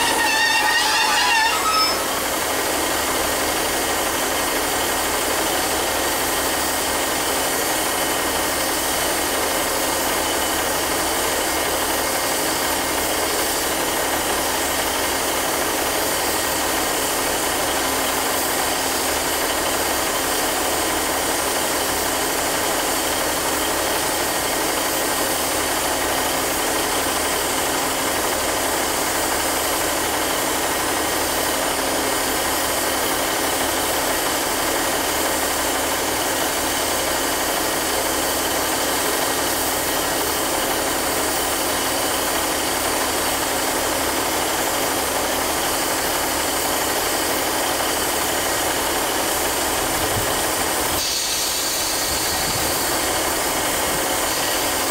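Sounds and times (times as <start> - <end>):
hiss: 0.0 - 27.6, 28.8 - 54.9
train diesel engines idling: 0.0 - 54.9.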